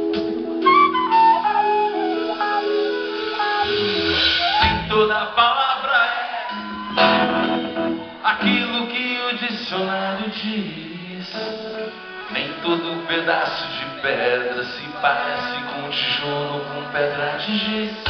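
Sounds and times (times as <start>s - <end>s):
acoustic guitar: 0.0s - 18.0s
man singing: 4.5s - 7.4s, 8.2s - 18.0s.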